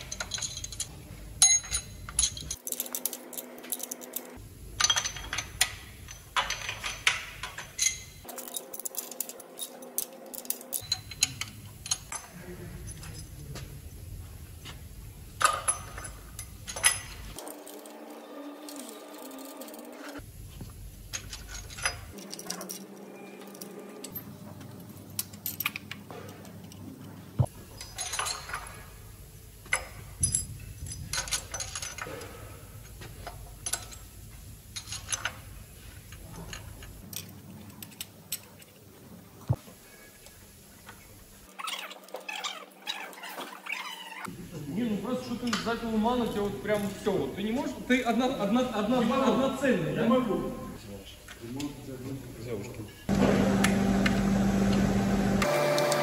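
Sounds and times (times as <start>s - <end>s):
tools and metal parts clinking: 0.0s - 13.6s, 15.4s - 20.3s, 21.0s - 38.9s, 45.2s - 47.7s
workshop background noise: 0.0s - 56.0s.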